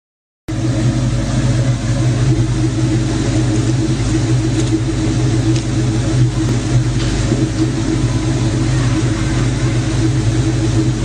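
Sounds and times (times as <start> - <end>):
car engine running: 0.5 - 11.0.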